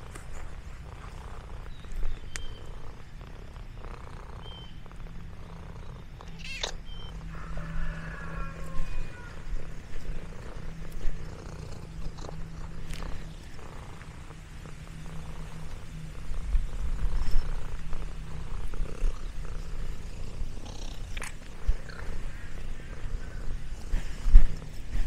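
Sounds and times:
cat purring: 0.0 - 6.4, 9.3 - 25.0
cat meowing: 6.4 - 6.8, 8.3 - 9.6.

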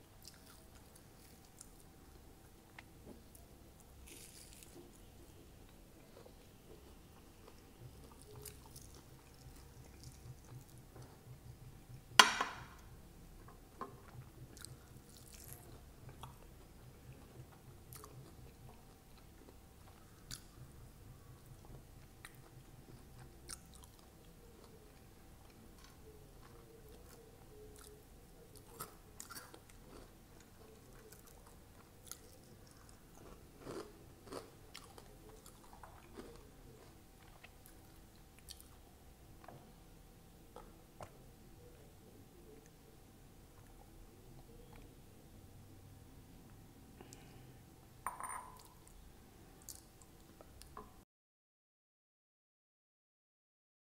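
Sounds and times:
chewing fried snack: 0.2 - 11.3, 14.0 - 20.8, 21.4 - 38.8.

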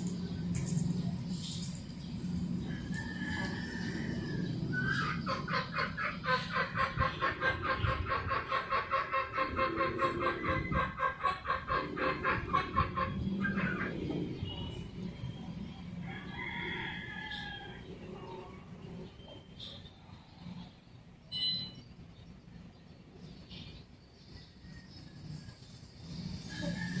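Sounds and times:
chicken clucking: 2.9 - 14.5.

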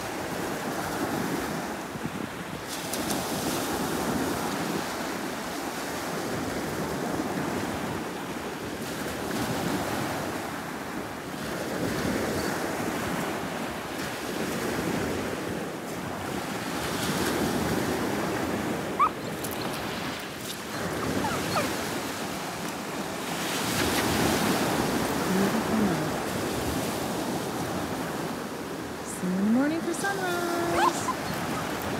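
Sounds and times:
small waves breaking on sand: 0.0 - 31.9
wind buffeting microphone: 14.1 - 29.1.

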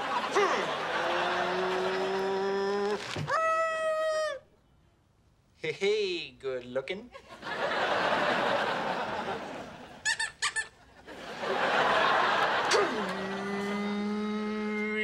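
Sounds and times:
audience laughter: 0.0 - 2.8, 7.2 - 10.0, 11.0 - 13.9
man imitating race car: 12.7 - 15.0.

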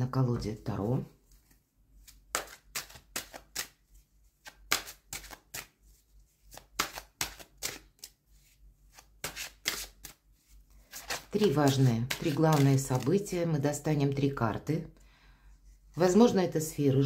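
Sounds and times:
cards being shuffled: 1.3 - 13.3.

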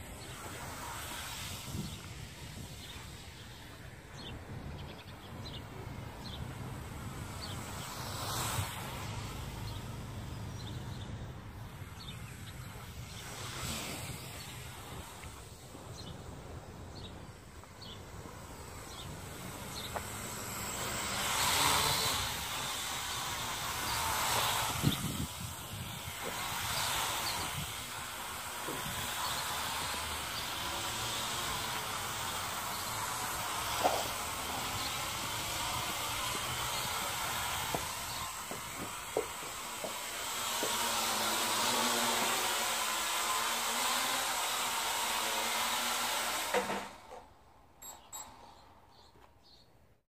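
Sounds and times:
toy drone motors whirring: 0.0 - 47.3.

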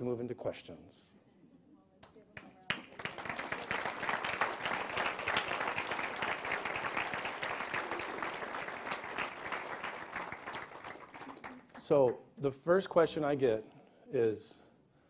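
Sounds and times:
audience applause: 2.7 - 11.9.

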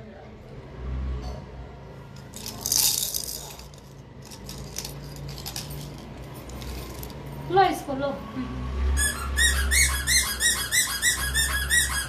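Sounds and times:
small hard objects jingling: 2.2 - 7.4.

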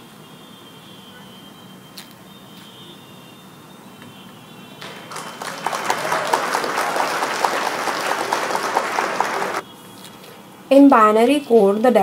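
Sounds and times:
crowd clapping: 4.8 - 9.6.

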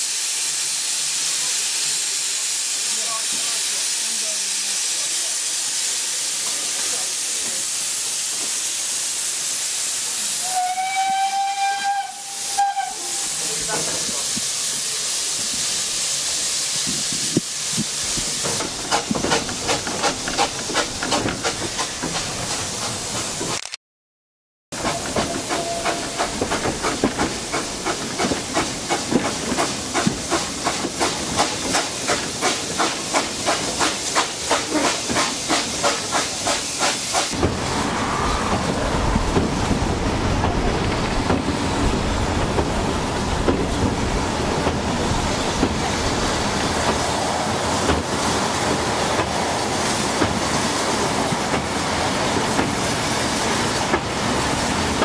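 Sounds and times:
steam hissing: 0.0 - 23.5, 24.8 - 55.0
steam locomotive chuffing: 0.0 - 23.5, 24.7 - 55.0
carriages rumbling on rails: 16.8 - 23.5, 24.8 - 55.0.

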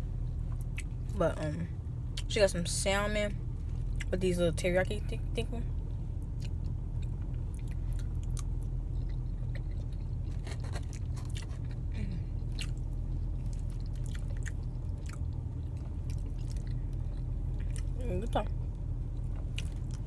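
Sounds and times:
steady low hum: 0.0 - 20.0
person chewing: 6.4 - 18.0, 19.2 - 20.0.

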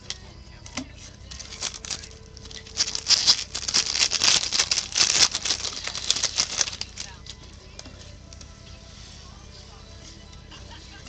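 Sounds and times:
trading cards flicking: 0.0 - 7.9.

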